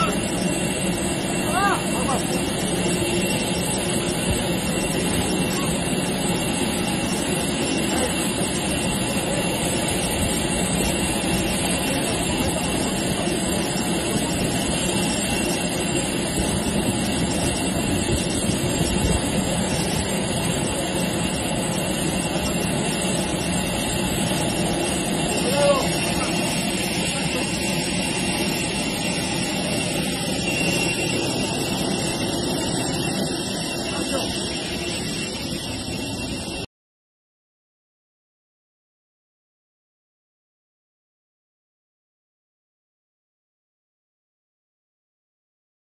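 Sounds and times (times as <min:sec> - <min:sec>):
jet engine idling: 0:00.0 - 0:36.7.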